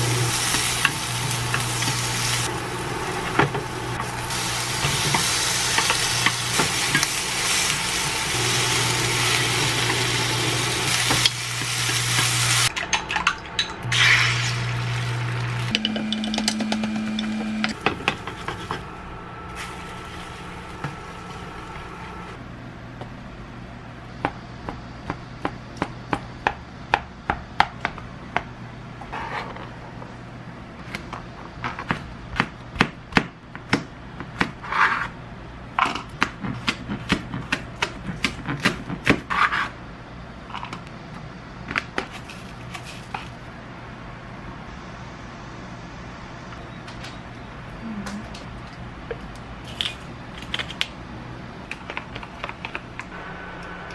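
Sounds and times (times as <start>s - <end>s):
steady hum: 0.0s - 31.4s, 43.3s - 53.9s.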